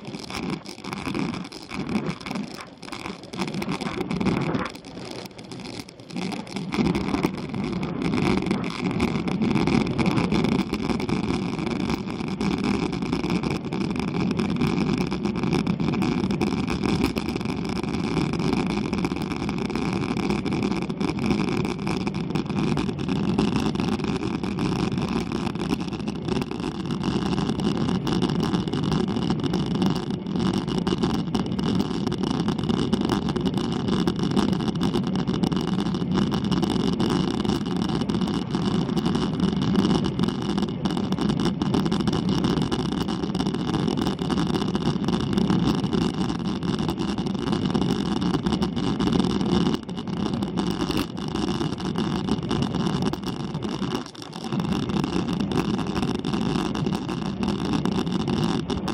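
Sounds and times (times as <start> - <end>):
bike road and wind noise: 0.0 - 10.9.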